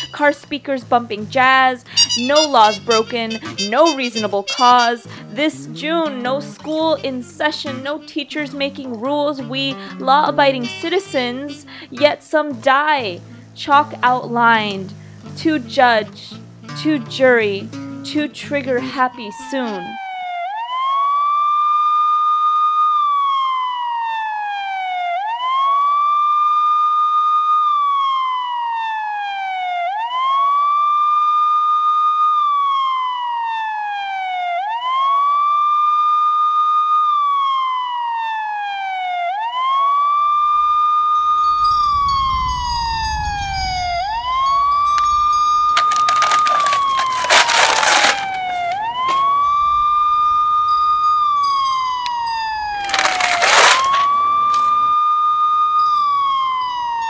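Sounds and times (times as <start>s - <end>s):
police siren wailing: 0.0s - 0.2s, 18.8s - 57.0s.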